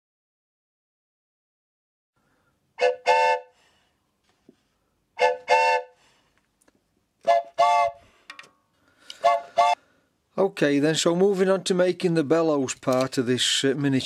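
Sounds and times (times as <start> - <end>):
train whistle toots: 2.8 - 3.7, 5.2 - 6.1, 7.2 - 8.1, 9.1 - 9.8.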